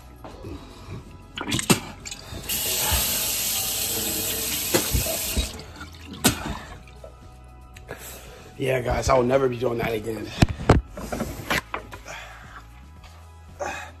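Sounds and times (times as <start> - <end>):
faucet water running: 2.1 - 6.9.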